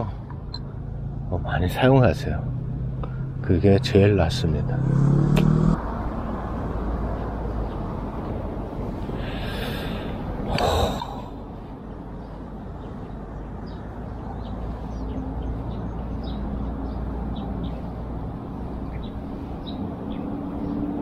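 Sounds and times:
low outdoor rush: 0.0s - 21.0s
small birds chirping: 9.1s - 21.0s
breathy burst: 9.2s - 11.4s.

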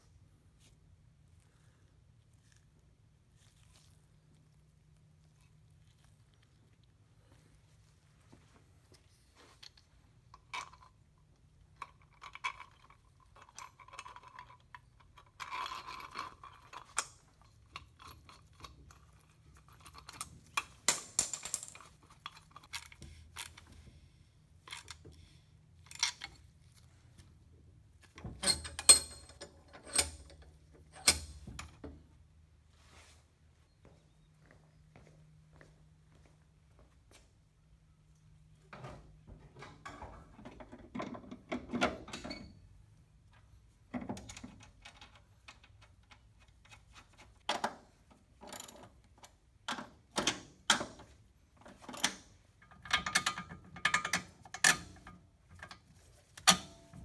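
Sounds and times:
metal clinks and scrapes: 28.3s - 31.8s.

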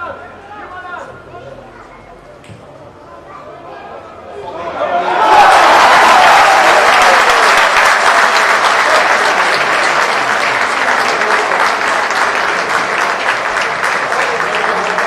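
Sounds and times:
stadium crowd clapping: 5.1s - 15.0s.

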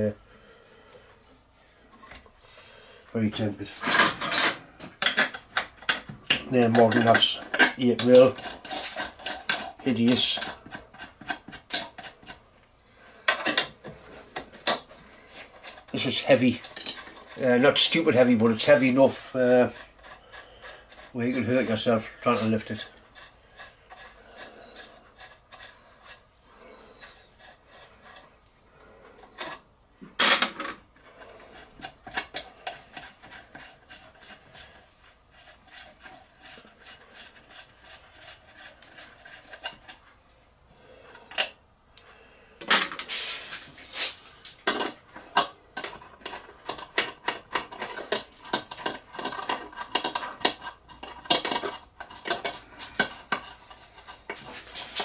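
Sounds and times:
metal clinks and scraping: 3.7s - 10.7s, 14.5s - 22.8s.

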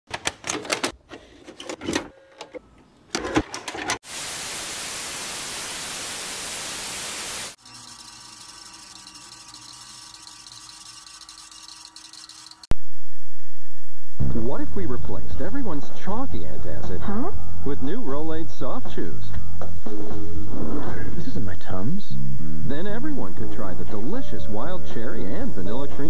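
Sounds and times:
tv static hissing: 4.1s - 7.6s.

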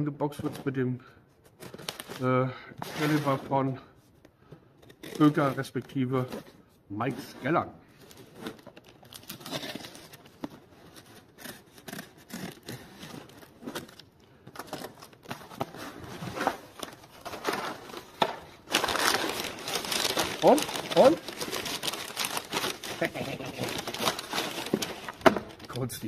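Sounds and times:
packing paper rustling: 1.5s - 3.6s, 4.8s - 26.0s
tape and cardboard tearing: 8.4s - 17.0s
knife slitting packing tape: 11.1s - 14.0s.

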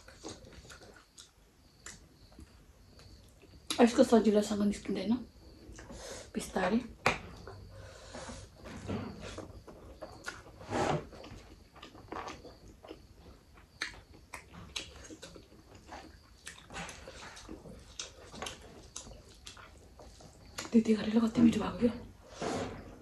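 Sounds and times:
chewing and wet smacks: 0.0s - 3.9s, 10.0s - 10.6s, 11.2s - 20.8s.

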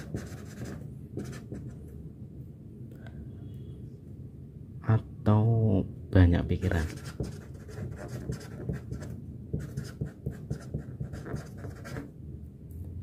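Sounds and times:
marker scratching on paper: 0.0s - 1.8s, 6.8s - 12.1s.

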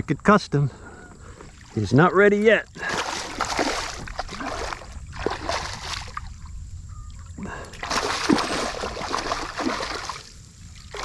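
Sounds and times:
fish splashing at water surface: 2.8s - 6.4s, 7.7s - 11.0s.

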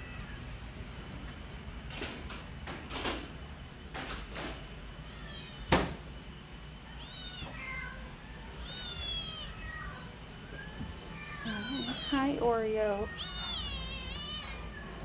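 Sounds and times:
cats meowing: 4.9s - 5.8s, 6.8s - 15.0s.

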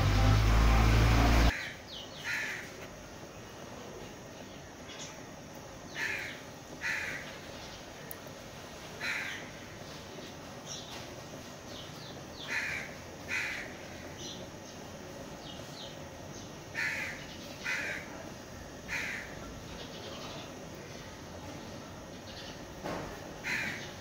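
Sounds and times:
crows cawing: 1.5s - 2.8s, 5.9s - 7.3s, 9.0s - 9.7s, 12.4s - 14.1s, 16.7s - 18.2s, 18.9s - 19.5s, 23.4s - 24.0s.

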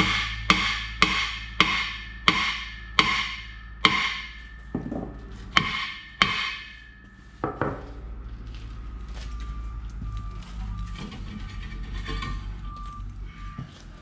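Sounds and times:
hammer striking metal: 0.0s - 7.9s
steady low hum: 0.0s - 14.0s.

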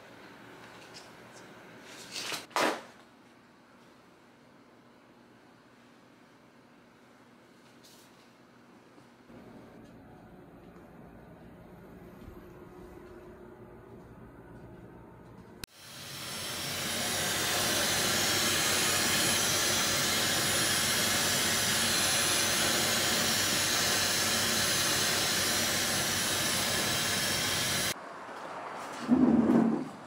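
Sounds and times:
hair dryer blowing with whine: 15.7s - 28.0s.

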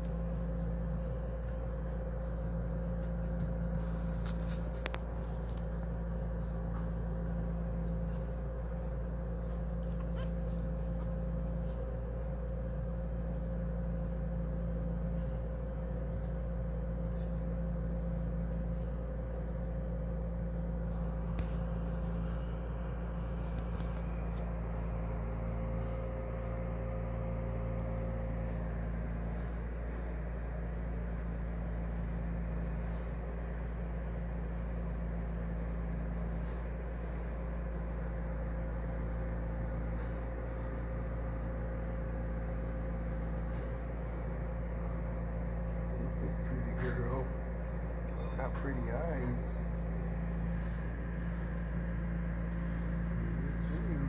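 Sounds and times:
machine hum and hiss: 0.0s - 54.0s
puppies squeaking: 9.8s - 11.7s.

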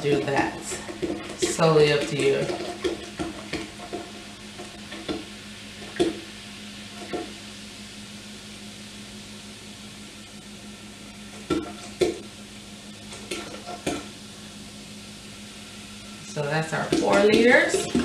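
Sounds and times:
soda fizzing and splashing: 0.0s - 7.8s, 15.5s - 18.0s.

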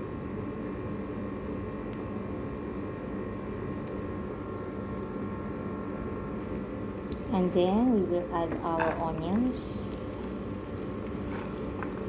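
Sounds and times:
low steady hum: 0.0s - 12.0s
butter sizzling in frying pan: 8.8s - 12.0s.

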